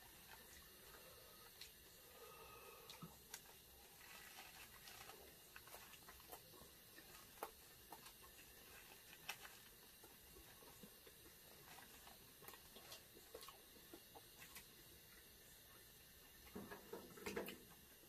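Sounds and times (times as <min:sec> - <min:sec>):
people chewing: 0:00.0 - 0:15.3
paper wrappers crackling: 0:03.3 - 0:10.6.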